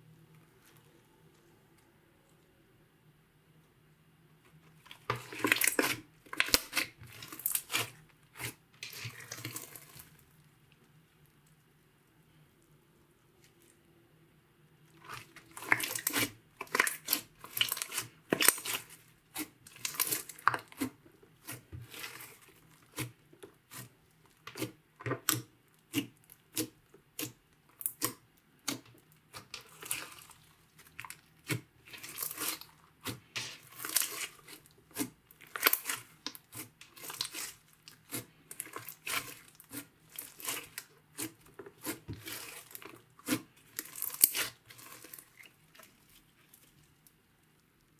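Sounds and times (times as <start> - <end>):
slime squishing and popping: 15.0 - 46.0.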